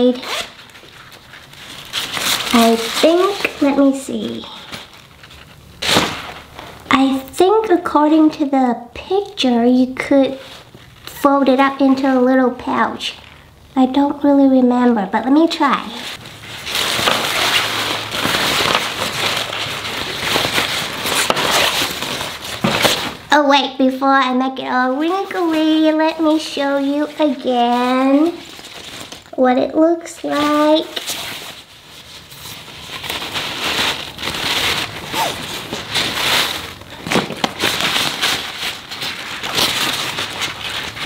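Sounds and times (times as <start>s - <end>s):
fabric bag rustling and crinkling: 0.0s - 7.3s, 15.6s - 23.3s, 25.0s - 29.4s, 30.2s - 41.0s.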